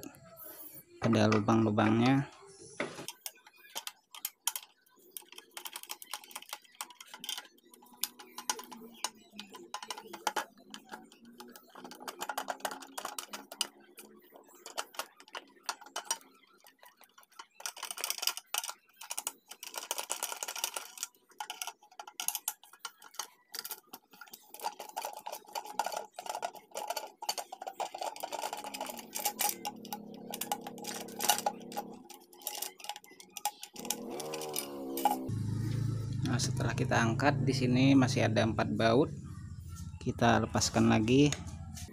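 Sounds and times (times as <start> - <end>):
plastic and metal clicks and scrapes: 3.0 - 36.8.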